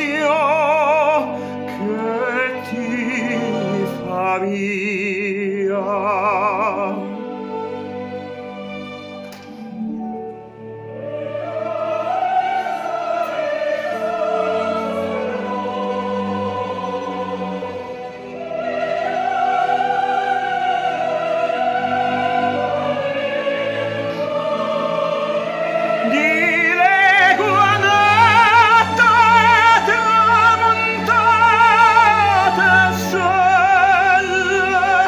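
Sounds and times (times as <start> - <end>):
operatic male voice singing: 0.0 - 7.2, 21.8 - 35.0
orchestra playing: 0.0 - 35.0.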